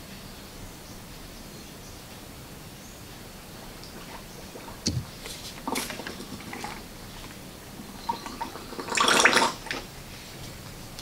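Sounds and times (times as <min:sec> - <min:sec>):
oil squirting and spluttering: 0:03.8 - 0:09.9.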